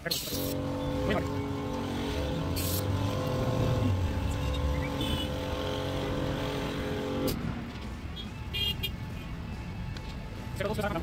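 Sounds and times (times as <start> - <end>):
motor running: 0.3 - 7.4.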